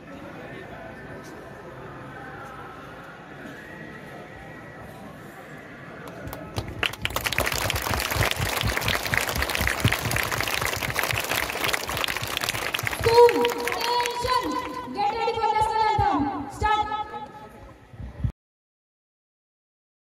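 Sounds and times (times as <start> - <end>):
crowd applauding: 6.0 - 14.9.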